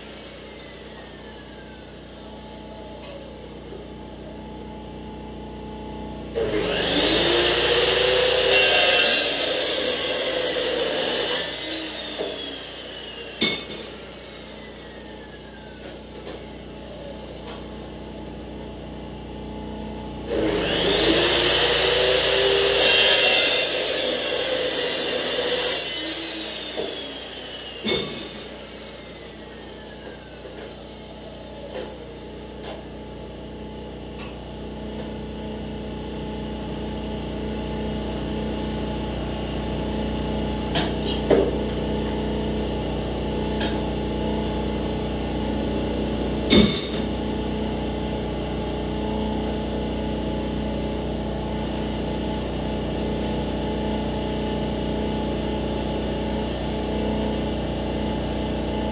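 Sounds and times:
chop saw winding down: 0.0 - 2.3, 6.4 - 17.6, 20.2 - 32.9.

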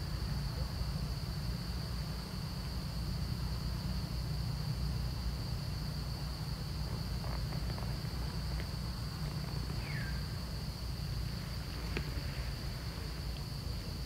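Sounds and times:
insects droning: 0.0 - 14.0
faint ticks: 6.8 - 10.1, 11.3 - 13.9.

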